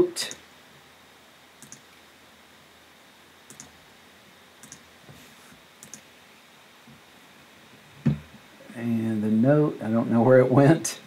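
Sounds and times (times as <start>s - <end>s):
faint background hiss: 0.0s - 11.0s
computer mouse clicking: 1.6s - 1.8s, 3.5s - 3.7s, 4.6s - 4.8s, 5.8s - 6.1s.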